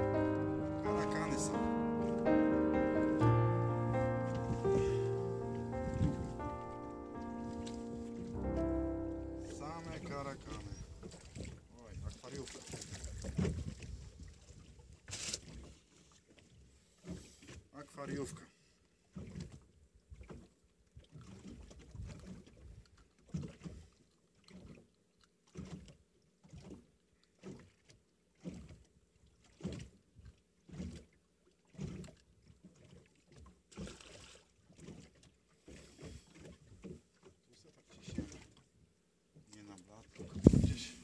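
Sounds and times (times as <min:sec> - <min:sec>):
waves slapping boat hull: 0:00.0 - 0:38.8, 0:39.4 - 0:41.0.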